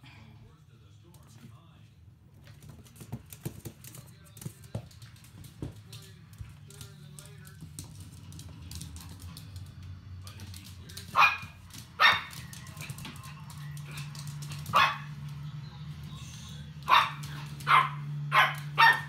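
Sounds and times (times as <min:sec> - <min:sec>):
puppy barking: 0:11.1 - 0:13.2, 0:13.8 - 0:15.4, 0:16.8 - 0:19.0.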